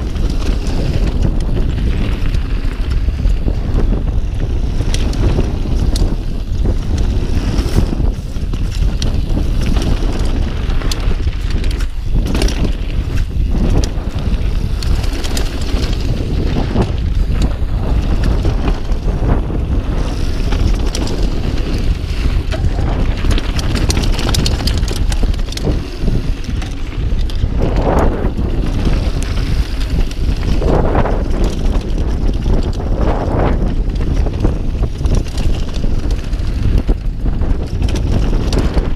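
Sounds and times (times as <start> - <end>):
bike rattling and knocking: 0.0 - 38.9
wind buffeting microphone: 0.0 - 38.9.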